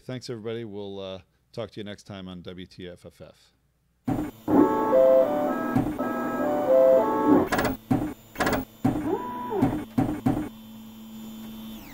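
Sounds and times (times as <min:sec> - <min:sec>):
harsh mechanical bursts: 0:04.1 - 0:10.5
electronic melody: 0:04.5 - 0:07.5.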